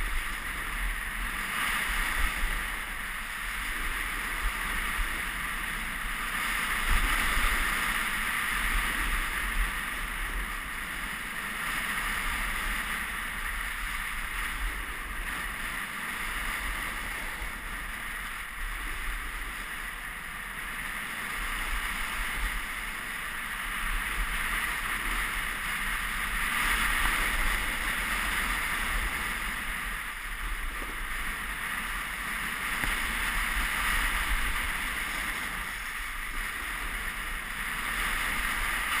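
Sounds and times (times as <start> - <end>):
wind on microphone: 0.0 - 39.0
skis hissing on snow: 13.2 - 20.3, 25.5 - 39.0.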